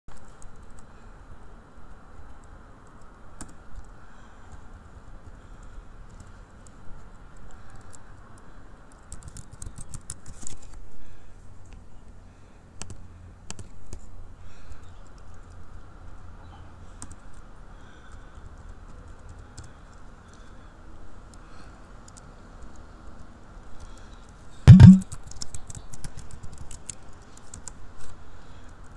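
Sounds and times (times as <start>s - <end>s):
keyboard key clicks: 24.7s - 25.0s
low steady hum: 24.7s - 25.0s.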